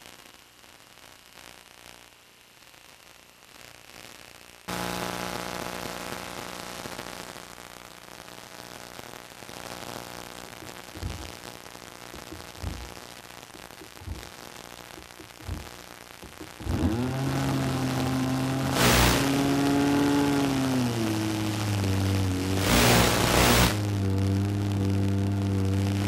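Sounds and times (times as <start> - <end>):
radio static hiss: 0.0 - 26.0
short low thumps: 11.0 - 11.3, 12.2 - 13.0, 13.8 - 14.4, 15.0 - 16.8.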